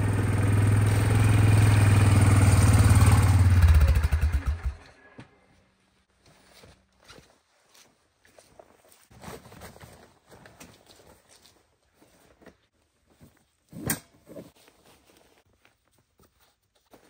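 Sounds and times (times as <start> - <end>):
footsteps on forest ground: 6.1 - 13.6, 14.5 - 17.0.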